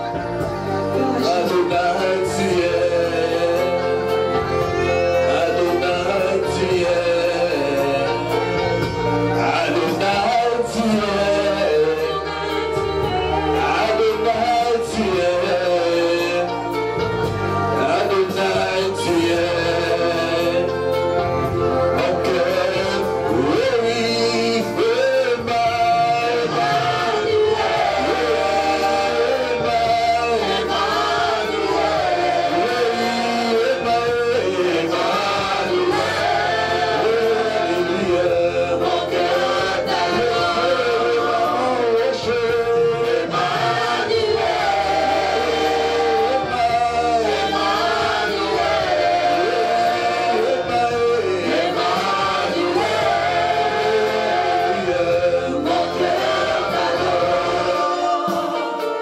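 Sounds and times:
backing singers: 0.0 - 59.0
band playing with bass: 0.0 - 59.0
man singing into microphone: 0.9 - 17.1, 17.7 - 59.0.

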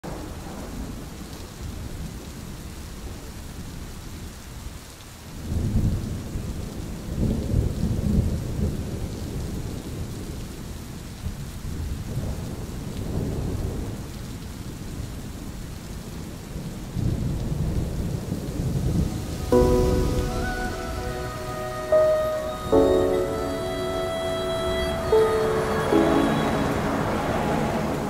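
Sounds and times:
rain falling: 0.0 - 28.0
thunder rumbling: 16.5 - 28.0.

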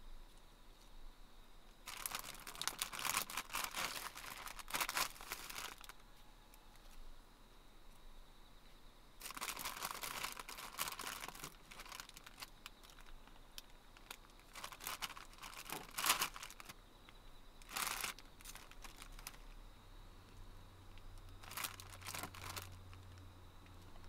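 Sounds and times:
crinkling and rustling: 1.8 - 7.0, 9.2 - 19.6, 20.9 - 24.0.

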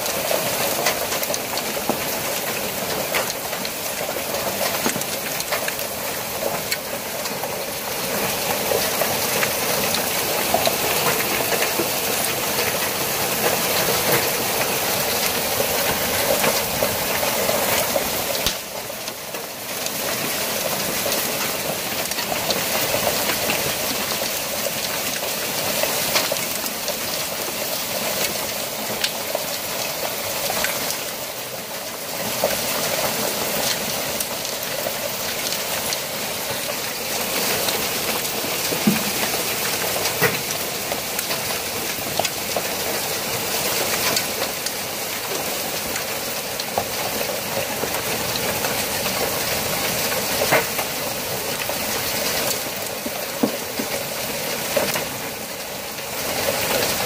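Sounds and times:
hail and rain pelting: 0.0 - 57.0
hailstones clicking: 0.1 - 31.6.

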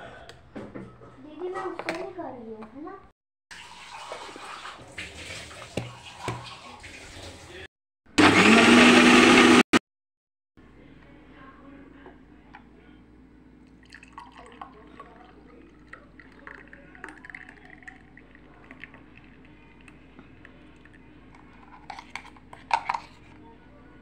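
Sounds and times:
thick drink pouring into glass: 13.7 - 21.0.

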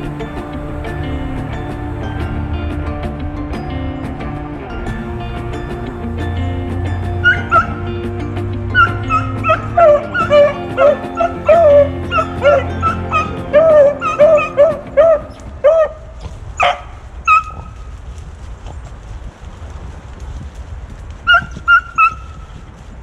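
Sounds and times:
beagles baying: 0.0 - 17.8, 21.2 - 22.4.

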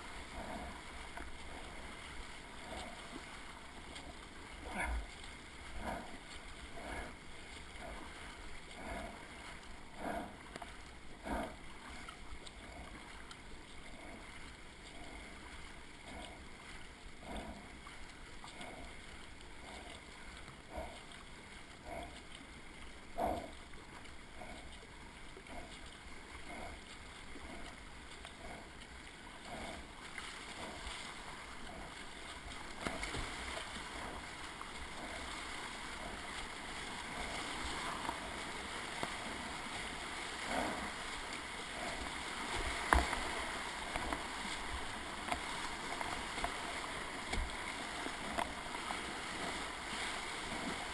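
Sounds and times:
water washing along hull: 0.0 - 50.9
whitewater rushing: 30.4 - 50.9
paddle splashing into water: 32.0 - 35.5.

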